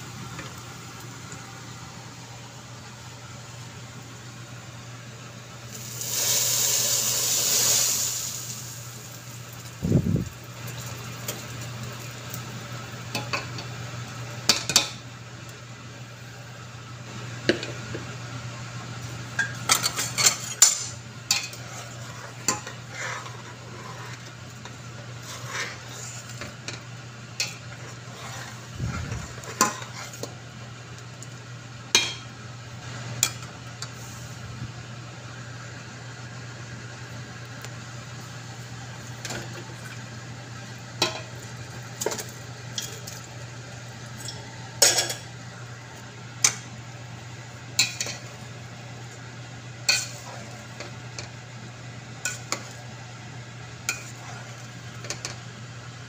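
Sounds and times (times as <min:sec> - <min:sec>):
oil sizzling loudly: 0:05.6 - 0:13.6
steady low hum: 0:07.2 - 0:56.0.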